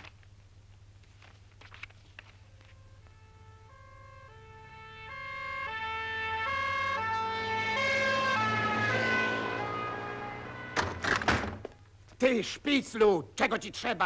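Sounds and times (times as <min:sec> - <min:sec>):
two-tone siren: 0:02.6 - 0:11.0.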